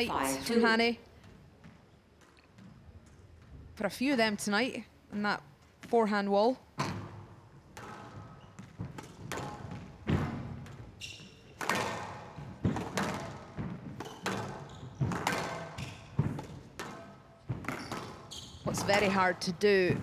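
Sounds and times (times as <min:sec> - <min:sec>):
ball hitting walls: 0:06.8 - 0:10.9, 0:11.6 - 0:20.0
squash racket hits: 0:06.8 - 0:10.9, 0:11.6 - 0:20.0.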